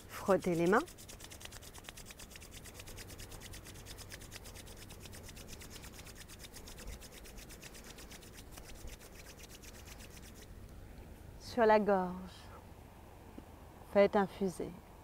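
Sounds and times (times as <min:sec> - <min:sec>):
palms rubbing together: 0:00.0 - 0:10.5.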